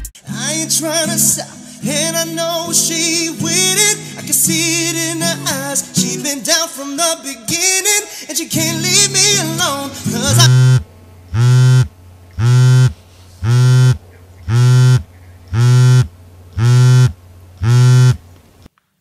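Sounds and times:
phone vibrating against metal: 10.3s - 18.3s.

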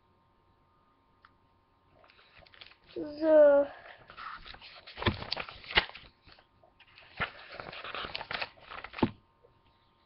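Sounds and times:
book pages rustling: 2.0s - 3.2s, 3.9s - 9.2s.

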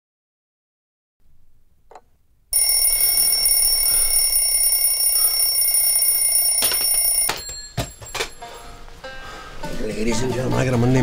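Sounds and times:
bell alarm clock ringing: 2.6s - 8.7s.

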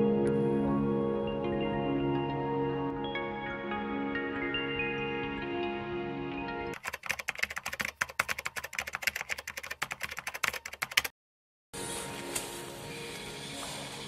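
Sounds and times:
calm ambient music: 0.0s - 6.8s, 11.8s - 14.0s
rapid keyboard typing clicks: 6.8s - 11.1s.

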